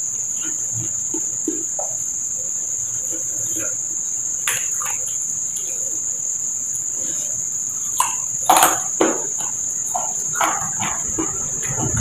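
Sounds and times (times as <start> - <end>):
insects chirring: 0.0 - 12.0
loud chewing: 7.9 - 12.0.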